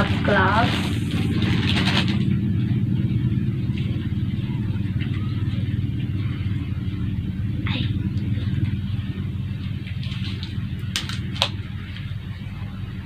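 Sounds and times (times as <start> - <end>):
wrapper crinkling: 0.0 - 2.4
low mechanical hum: 0.0 - 13.0.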